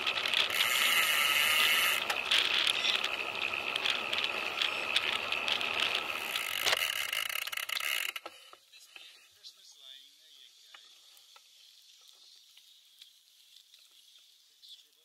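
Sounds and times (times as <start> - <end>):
bicycle freehub ratchet buzzing: 0.0 - 8.4.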